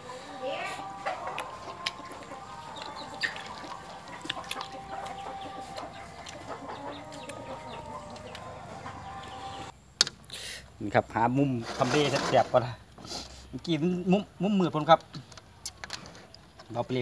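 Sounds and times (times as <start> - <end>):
chickens clucking: 0.0 - 9.9.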